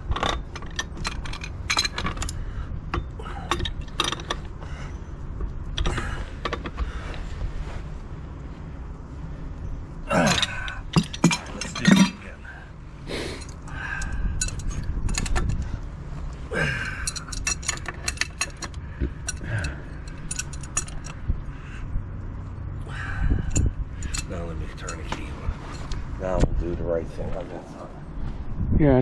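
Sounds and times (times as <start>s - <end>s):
hand tools clinking on metal: 10.1s - 12.4s, 16.6s - 21.2s, 23.5s - 25.9s.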